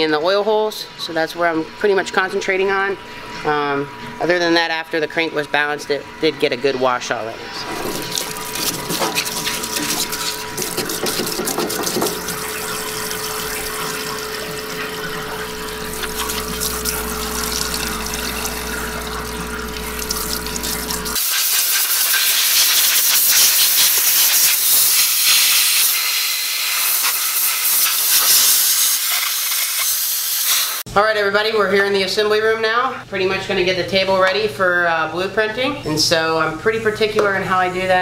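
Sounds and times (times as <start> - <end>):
machine hum: 0.1 - 21.2
hissing spray: 21.2 - 30.8.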